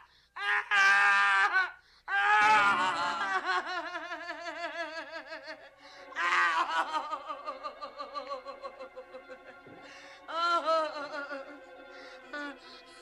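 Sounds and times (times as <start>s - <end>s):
woman screaming: 0.4s - 8.4s.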